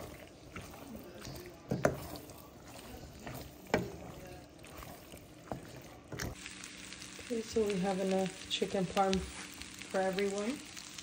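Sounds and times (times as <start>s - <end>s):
spoon stirring pasta in sauce: 0.0s - 7.3s.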